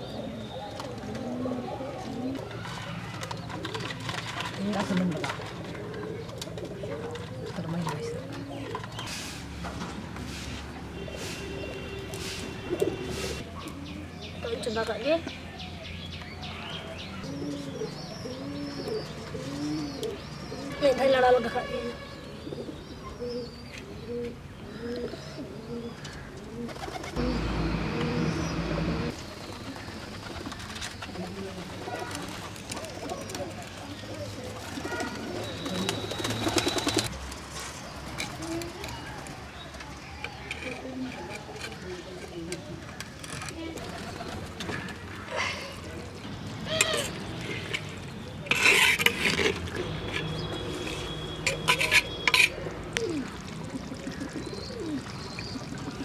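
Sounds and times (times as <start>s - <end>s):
bird cooing: 17.2s - 20.8s, 22.4s - 28.5s, 51.6s - 55.1s
metal spatula scraping clay pot: 46.8s - 52.6s.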